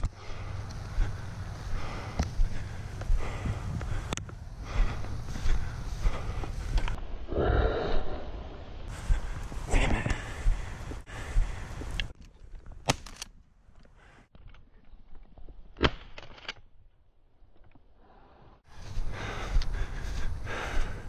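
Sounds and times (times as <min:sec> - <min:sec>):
heavy breathing: 0:00.0 - 0:12.1, 0:18.0 - 0:21.0
wind noise: 0:00.0 - 0:12.6, 0:18.7 - 0:21.0
sharp cracks: 0:12.8 - 0:13.4.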